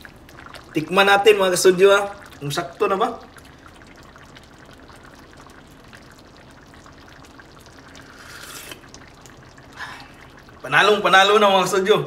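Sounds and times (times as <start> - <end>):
broth simmering and bubbling: 0.0 - 12.0
slurp from a spoon: 8.0 - 9.0.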